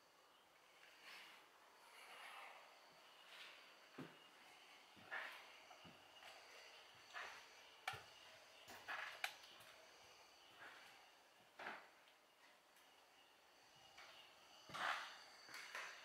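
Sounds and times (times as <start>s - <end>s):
faint footsteps: 2.0s - 9.8s.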